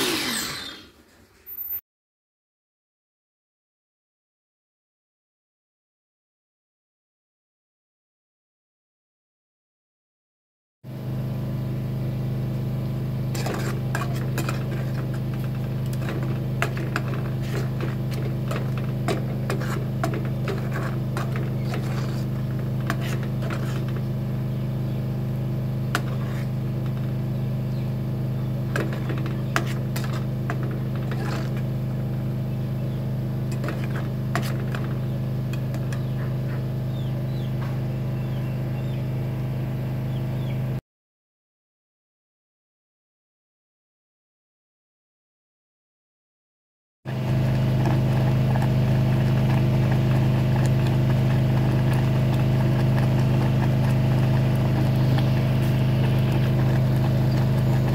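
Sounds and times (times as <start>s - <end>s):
low machine hum: 10.9s - 40.8s, 47.1s - 57.9s.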